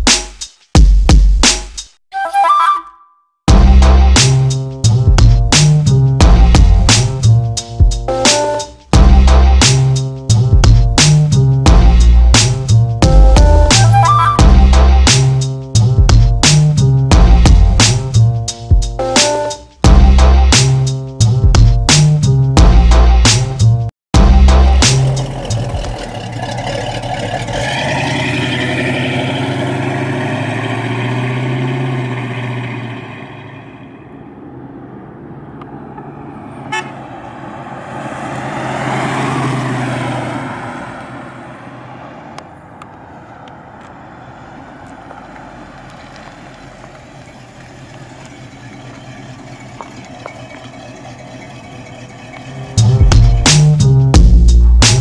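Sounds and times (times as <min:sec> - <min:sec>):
car engine running: 0:24.2 - 0:36.1, 0:44.3 - 0:55.0
car driving past: 0:25.2 - 0:53.2.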